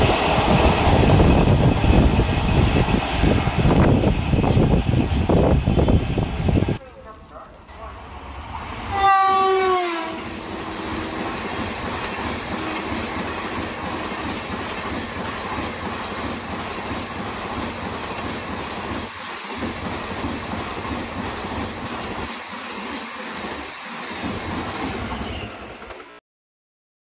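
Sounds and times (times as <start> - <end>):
train coaches rumbling past: 0.0 - 26.2
train horn: 8.8 - 11.4.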